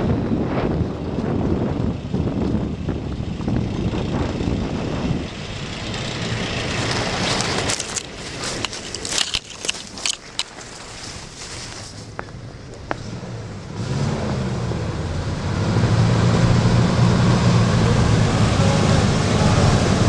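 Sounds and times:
wind buffeting microphone: 0.0 - 20.0
footsteps in dry leaves: 6.6 - 12.4.

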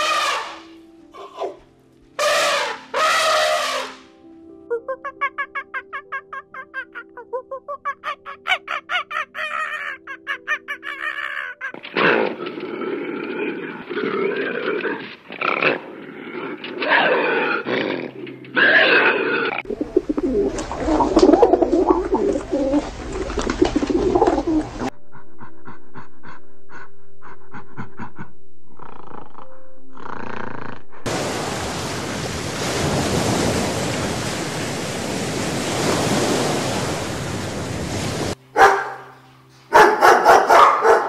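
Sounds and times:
quiet background music: 0.0 - 26.8, 38.4 - 41.0
deep rumbling growl: 19.2 - 31.1.

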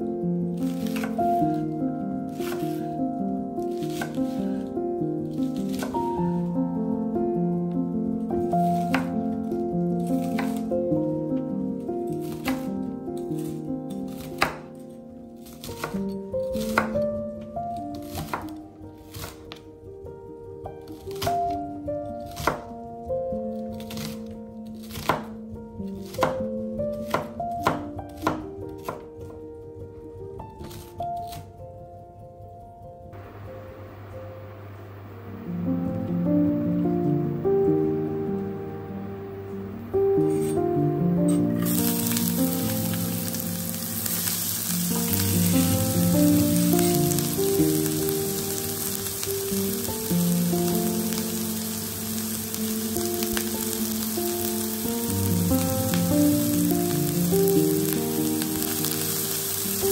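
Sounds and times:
onion sizzling in oil: 0.0 - 14.7, 33.2 - 59.9
soft background music: 0.0 - 59.9
knife chopping on wooden board: 0.8 - 1.6, 2.4 - 2.9, 3.9 - 4.2, 24.9 - 25.3.

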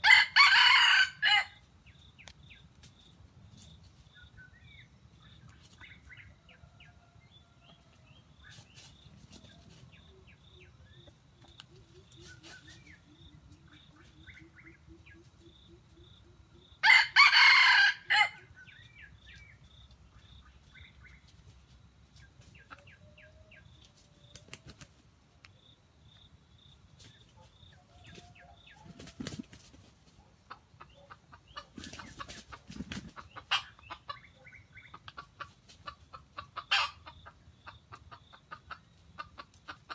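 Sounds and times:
fowl clucking and calling: 0.0 - 1.6, 9.3 - 19.0, 22.4 - 24.8, 30.2 - 39.9
rooster crowing: 0.0 - 1.6, 16.8 - 18.5.

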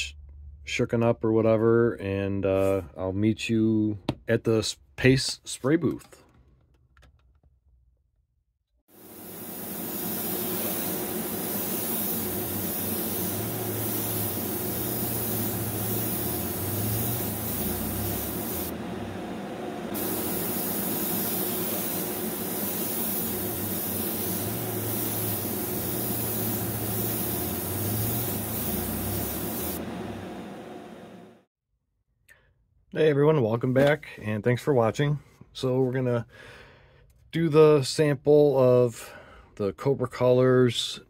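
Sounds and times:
exhaust fan air rush: 9.0 - 31.4.

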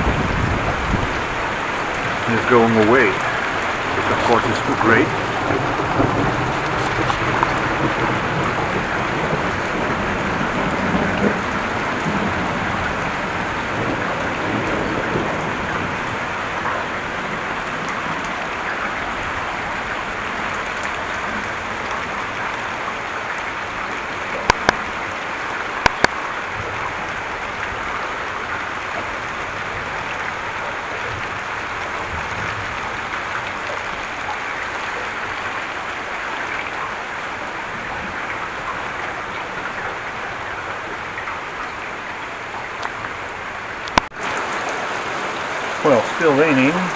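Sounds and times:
low thunder rumble: 0.0 - 18.3
heavy rain falling: 0.0 - 46.9
sharp clicks: 24.5 - 24.8, 25.8 - 26.2.

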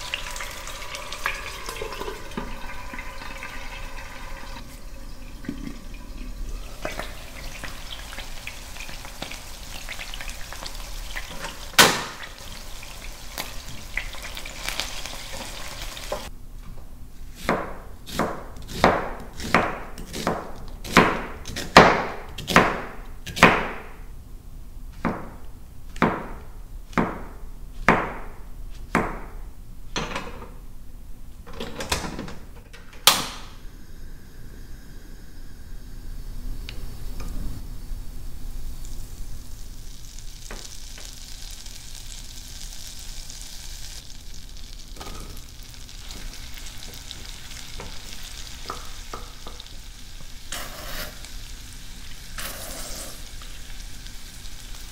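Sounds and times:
steady hiss: 33.3 - 54.9.

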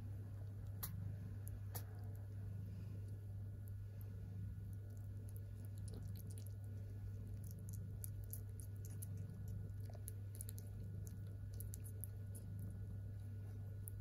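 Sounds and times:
low hum: 0.0 - 14.0
kittens suckling: 0.3 - 14.0.

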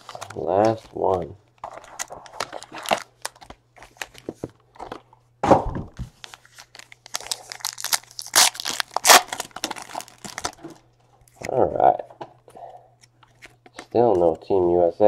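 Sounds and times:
foil wrapper crinkling and tearing: 0.0 - 4.2, 6.2 - 10.8.

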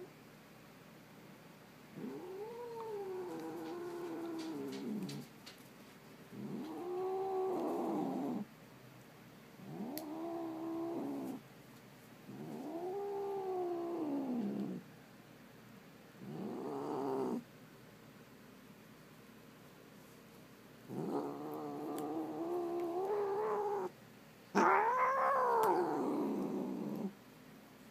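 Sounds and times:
cat yowling: 20.9 - 23.9, 24.6 - 27.1.

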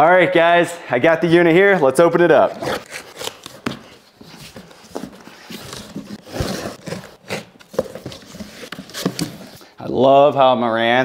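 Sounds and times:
cardboard box being opened: 2.5 - 9.6.

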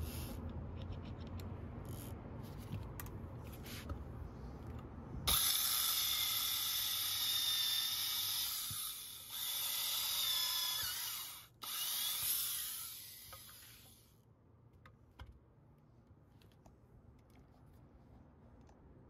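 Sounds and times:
electric drill boring into wood: 5.3 - 14.0.

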